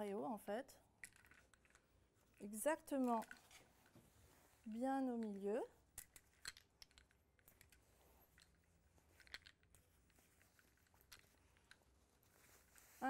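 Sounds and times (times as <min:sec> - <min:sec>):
fabric rustling: 0:03.2 - 0:05.6, 0:07.8 - 0:13.0.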